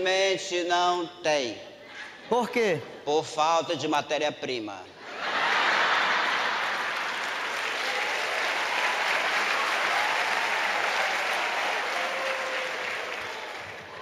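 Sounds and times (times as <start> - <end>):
audience laughing: 5.0 - 7.4
audience applauding: 5.3 - 14.0.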